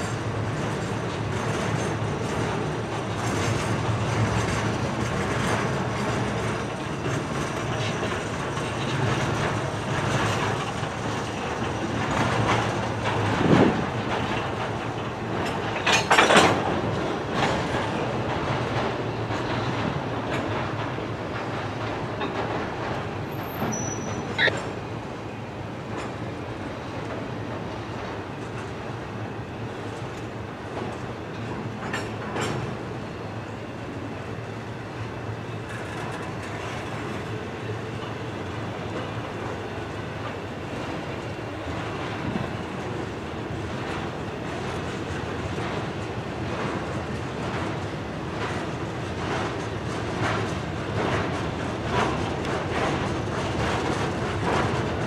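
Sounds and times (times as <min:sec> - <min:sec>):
train wheels clattering over rail joints: 0:00.0 - 0:55.0
high-pitched wheel squeal: 0:23.3 - 0:24.6.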